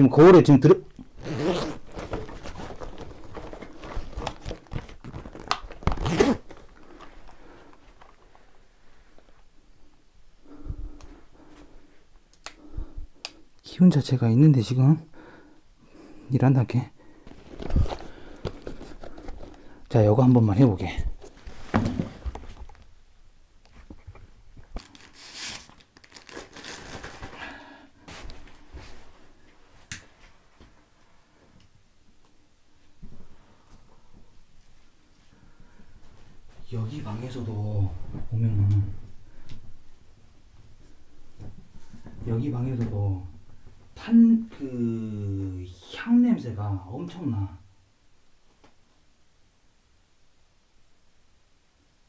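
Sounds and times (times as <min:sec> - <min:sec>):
phone and clothing rustling: 0:01.0 - 0:08.6, 0:17.2 - 0:19.9, 0:21.0 - 0:22.9.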